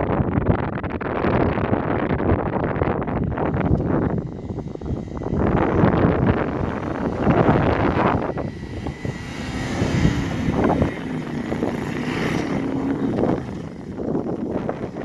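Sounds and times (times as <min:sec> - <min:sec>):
car engine running hard: 0:00.3 - 0:15.0
tyres churning sand: 0:03.5 - 0:15.0.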